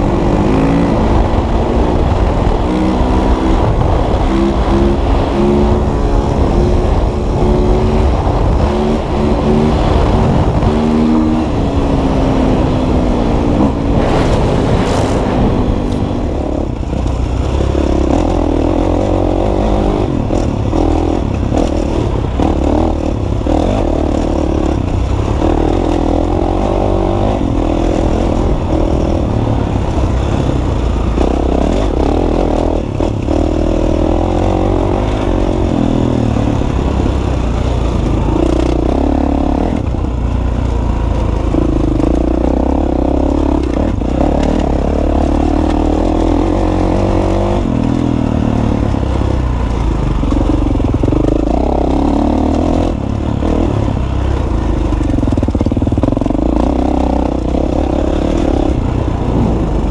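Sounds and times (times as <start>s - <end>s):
dirt bike engine revving: 0.0s - 40.0s, 40.7s - 59.9s
clatter and scraping: 13.6s - 18.7s.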